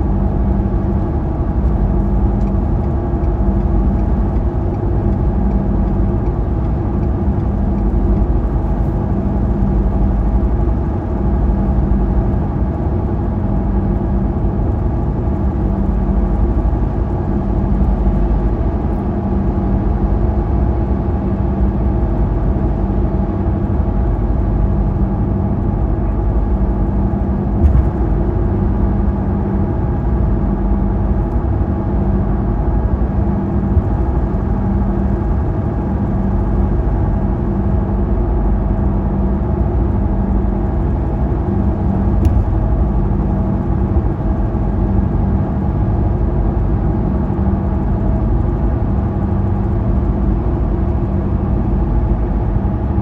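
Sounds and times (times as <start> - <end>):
car engine and tyre hum: 0.0 - 53.0
car bump: 27.6 - 28.2.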